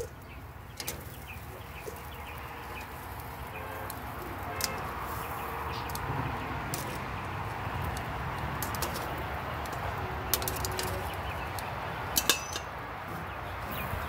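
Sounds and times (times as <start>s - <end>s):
metallic clink: 12.2s - 12.7s.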